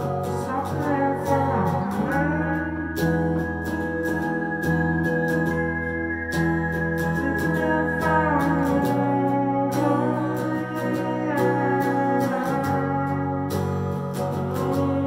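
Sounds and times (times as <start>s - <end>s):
keyboard sustained chords: 0.0s - 15.0s.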